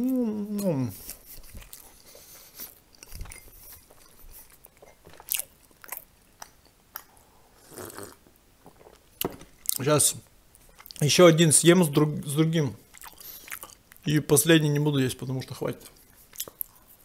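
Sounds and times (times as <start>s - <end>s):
chewing pancake: 0.9s - 9.0s, 12.9s - 14.1s, 15.8s - 17.0s
sip from a glass mug: 7.6s - 8.2s.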